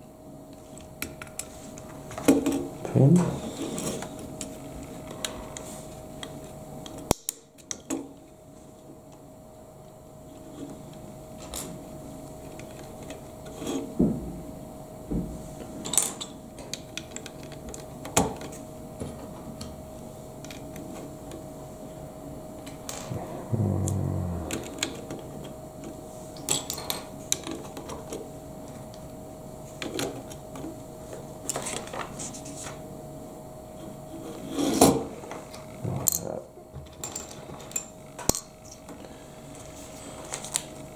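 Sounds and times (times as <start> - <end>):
faint steady hum: 19.6 - 31.5.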